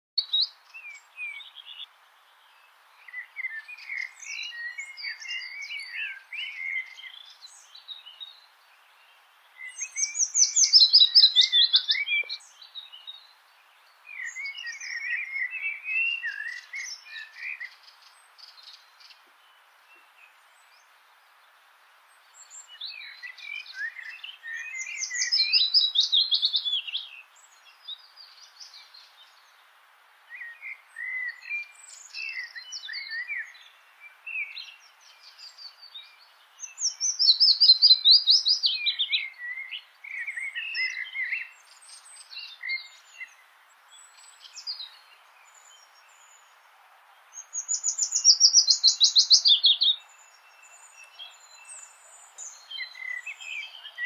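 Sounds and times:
faint steady hiss: 0:00.2 - 0:54.0
songbird warbling: 0:09.6 - 0:13.1, 0:47.4 - 0:54.0.

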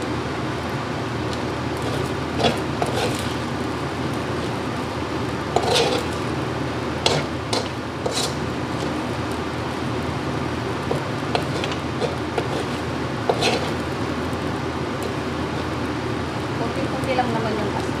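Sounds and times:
metal ladle scraping a wok: 0:01.8 - 0:03.4, 0:05.5 - 0:06.2, 0:07.0 - 0:08.4, 0:11.4 - 0:13.8.

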